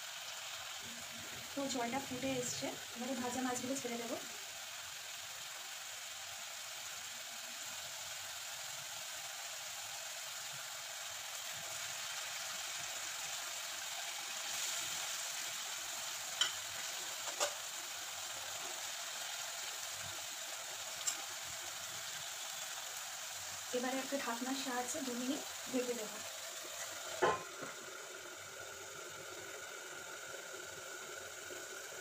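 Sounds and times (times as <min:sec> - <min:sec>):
gravy boiling and sizzling: 0:00.0 - 0:32.0.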